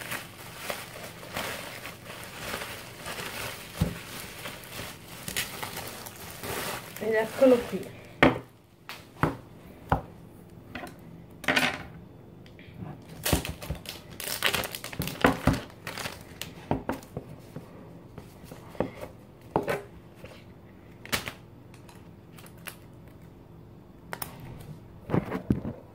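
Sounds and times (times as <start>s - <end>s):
plastic packaging rustling: 0.0s - 8.3s, 13.0s - 17.2s.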